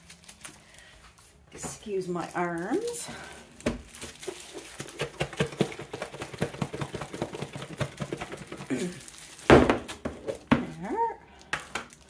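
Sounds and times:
plastic container shaken: 3.9 - 10.5
mixture thudding inside container: 4.5 - 8.8.

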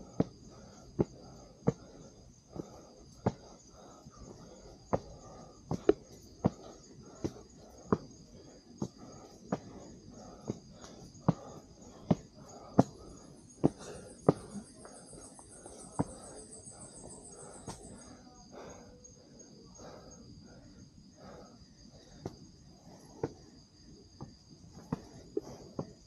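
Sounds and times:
footsteps on a trail: 0.0 - 8.2, 8.8 - 18.0
night insects chirring: 0.0 - 26.0
pulsing insect trill: 0.0 - 26.0.

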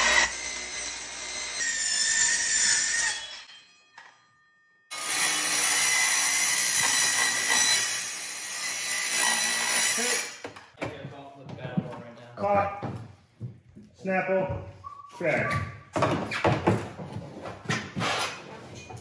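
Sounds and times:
circular saw cutting sheet steel: 0.0 - 10.4.

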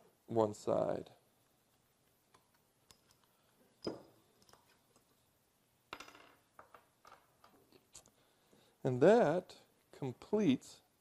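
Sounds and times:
metal washers clinking on wood: 2.3 - 5.1.

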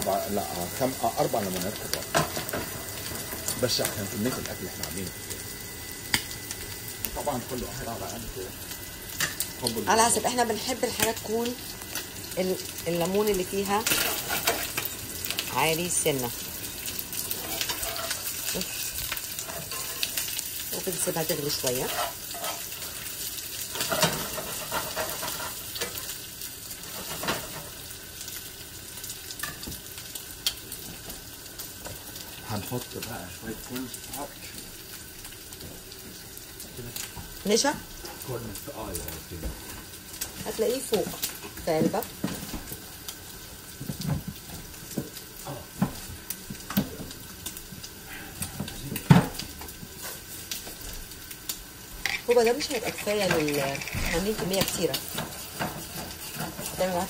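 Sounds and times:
sauce sizzling in a skillet: 0.0 - 57.0
utensils and dishes clinking: 52.1 - 57.0.

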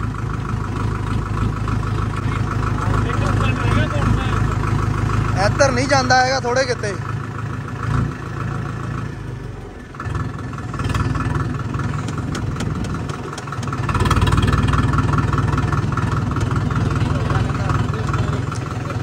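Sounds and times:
vehicle engine running: 0.0 - 19.0.

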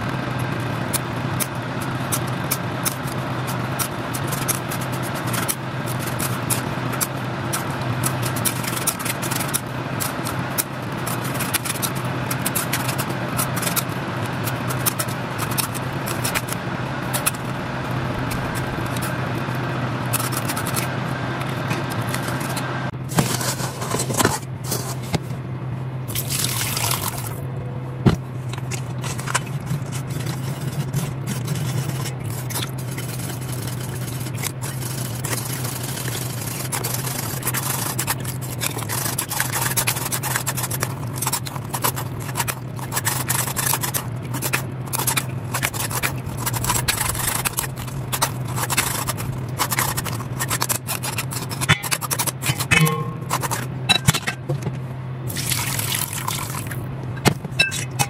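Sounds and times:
steady low hum: 0.0 - 58.0
spoon scraping metal strainer: 29.0 - 54.4.

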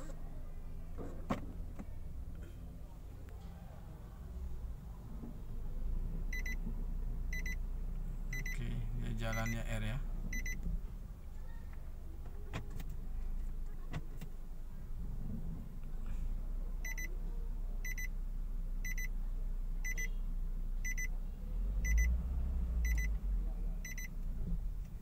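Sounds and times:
car engine running: 0.0 - 25.0
dashboard warning chime beeps: 6.3 - 6.6, 7.3 - 7.6, 8.3 - 8.6, 9.3 - 9.7, 10.3 - 10.6, 16.8 - 17.1, 17.8 - 18.1, 18.8 - 19.1, 19.8 - 20.2, 20.8 - 21.1, 21.8 - 22.1, 22.8 - 23.1, 23.8 - 24.1.

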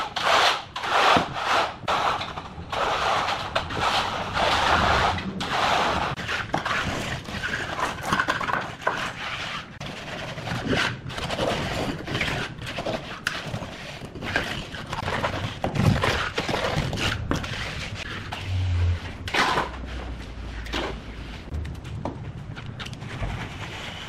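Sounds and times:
hand float scraping wet concrete: 0.0 - 21.6, 22.8 - 24.0
low hum: 18.0 - 23.6.

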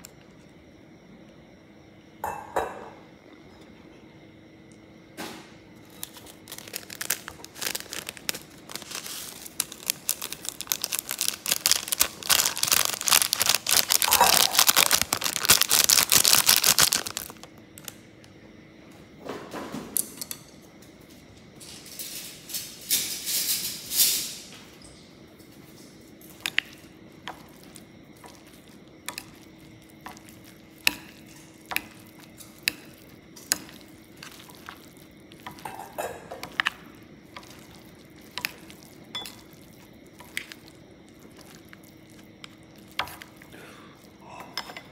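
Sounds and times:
plastic packet crinkling and tearing: 5.8 - 17.9
utensil clinking on ceramic bowl: 38.3 - 39.6.

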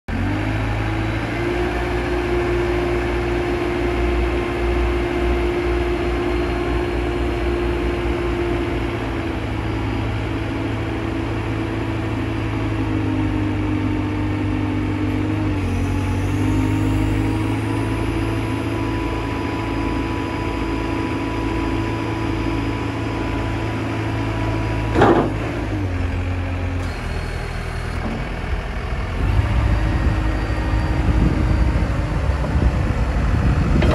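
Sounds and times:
diesel engine running: 0.1 - 33.9
steady whine: 15.0 - 33.9.

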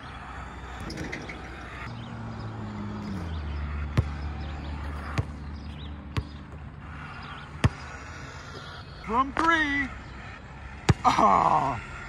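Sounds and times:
low motor hum: 0.0 - 12.0
basketball bouncing: 0.7 - 1.9, 3.0 - 8.0, 10.8 - 11.1.

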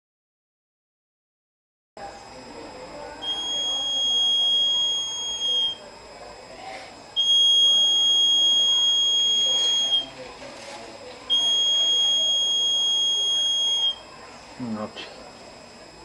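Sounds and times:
high-pitched buzzer tone: 3.2 - 5.8, 7.2 - 10.1, 11.3 - 14.1.

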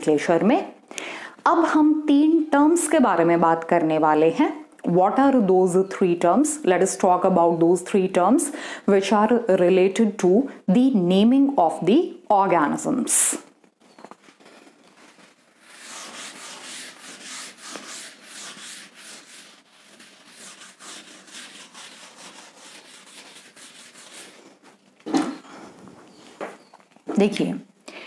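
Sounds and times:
duster rubbing on blackboard: 15.2 - 24.8.

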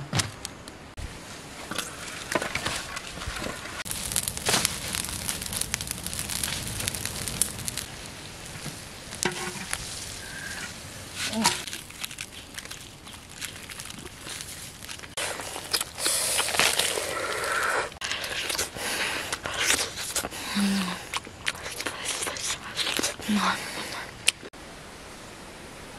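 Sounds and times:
fire crackling: 0.4 - 24.5
rustling and handling: 8.5 - 17.6.

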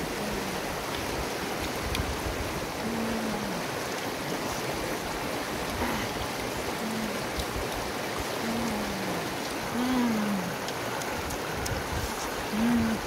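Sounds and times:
river rushing over rocks: 0.0 - 13.0
person humming while chewing: 2.8 - 3.7, 6.8 - 7.6, 8.4 - 13.0.

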